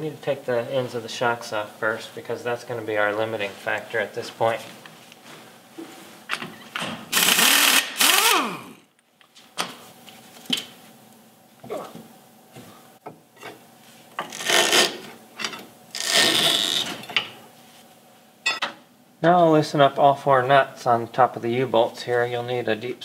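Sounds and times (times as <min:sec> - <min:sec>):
pneumatic impact wrench: 0:07.1 - 0:08.8, 0:14.3 - 0:15.0, 0:16.0 - 0:17.0.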